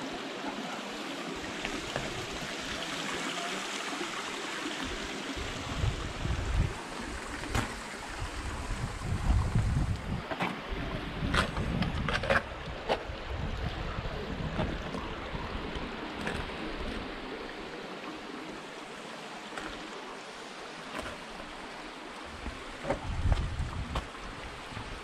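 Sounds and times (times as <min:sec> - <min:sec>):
stream babbling: 0:00.0 - 0:25.0
wind buffeting microphone: 0:05.4 - 0:15.9, 0:22.3 - 0:25.0.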